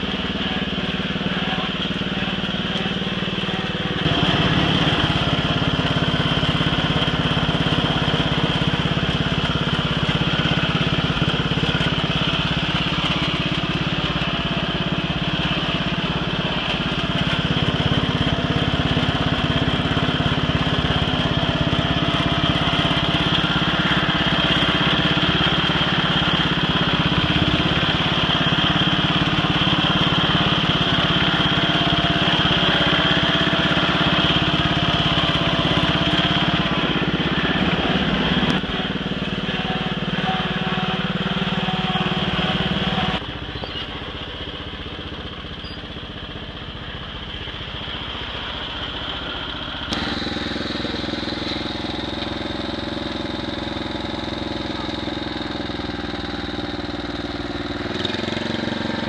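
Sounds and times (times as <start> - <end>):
garden tractor engine running: 0.0 - 59.0.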